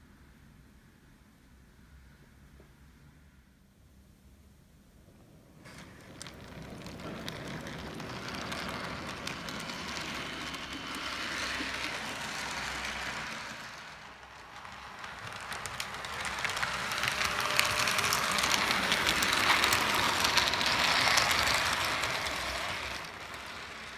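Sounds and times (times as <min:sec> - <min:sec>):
model train wheels rattling: 0:05.6 - 0:23.9.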